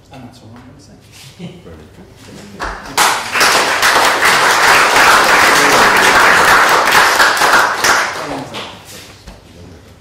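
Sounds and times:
audience applauding: 3.0 - 8.8.

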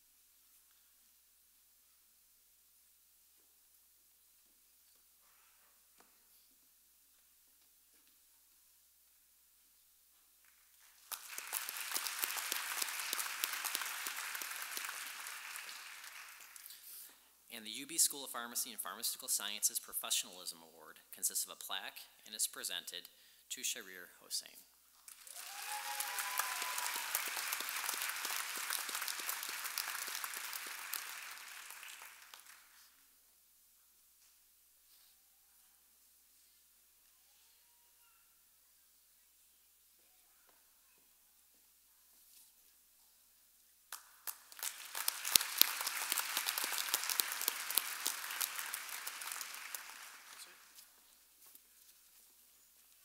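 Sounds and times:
audience applauding: 10.9 - 16.8, 25.1 - 32.9, 43.9 - 50.8.

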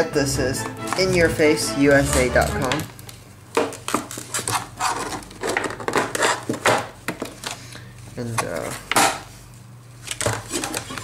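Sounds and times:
plastic packaging crackling and snapping: 2.6 - 9.2, 9.9 - 11.0.

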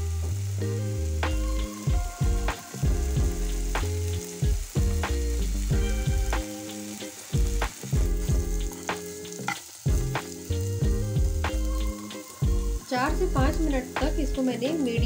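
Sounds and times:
instrumental background music: 0.0 - 15.0
paste sizzling in a pan: 0.0 - 15.0.

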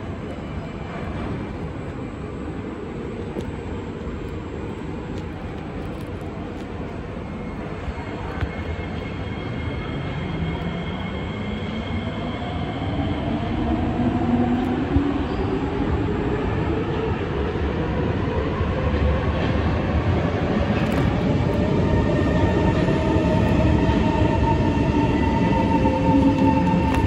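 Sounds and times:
metro train rumble: 0.0 - 27.0
train whining tones: 18.8 - 27.0.

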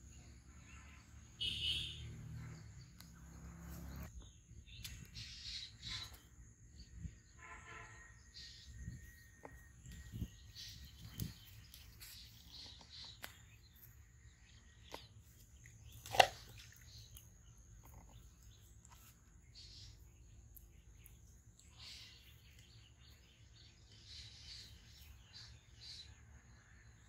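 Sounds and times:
birds chirping: 0.0 - 27.0.

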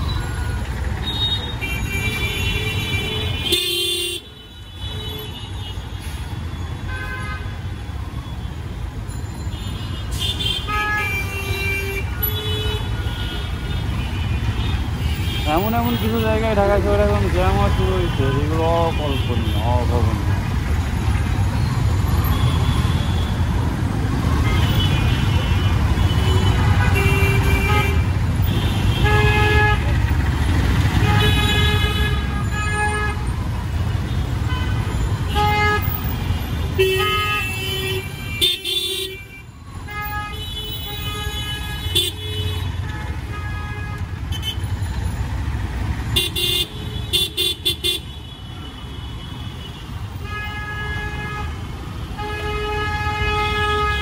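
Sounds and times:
vehicle horns honking: 1.0 - 5.9, 9.5 - 20.1, 24.3 - 44.8, 46.1 - 54.0
idling engines rumbling: 12.1 - 38.3.

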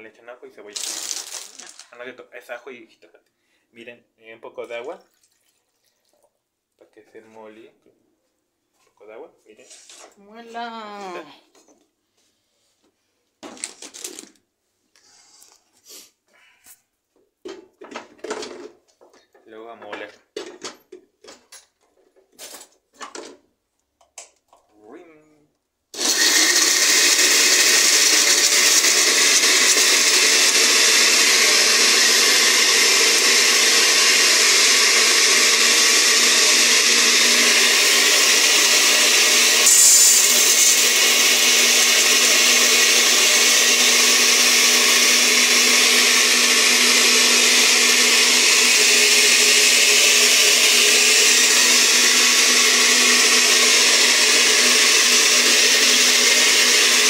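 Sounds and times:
blender running: 0.6 - 1.9, 25.9 - 57.0.

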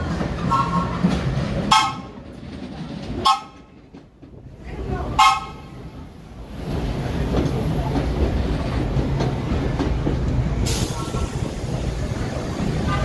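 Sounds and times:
subway train rumble: 0.0 - 13.0.

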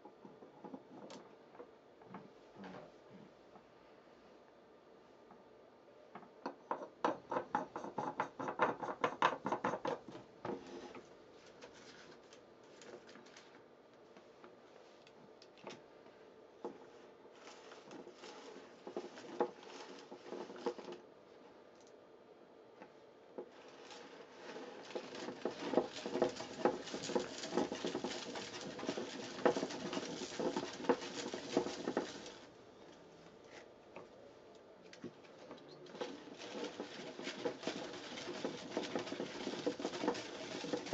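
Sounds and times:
plastic spiral clicking and rattling: 17.4 - 21.0, 23.5 - 32.5, 35.6 - 40.9.

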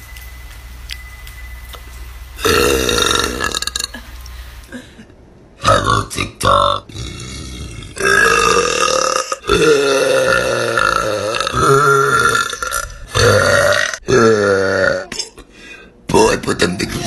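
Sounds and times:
woman burping: 2.4 - 4.8, 7.0 - 15.4.

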